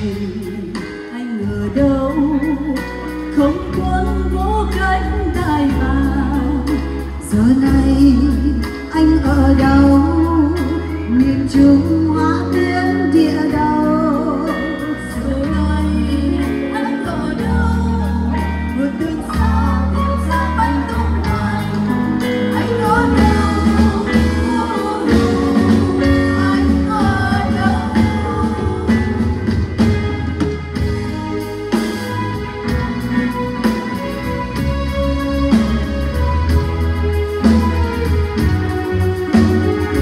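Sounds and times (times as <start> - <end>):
woman singing: 0.0 - 30.4
live band playing: 0.0 - 40.0.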